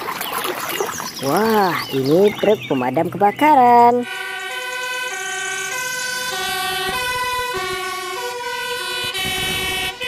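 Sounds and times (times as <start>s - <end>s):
fire engine two-tone siren: 3.5s - 10.0s.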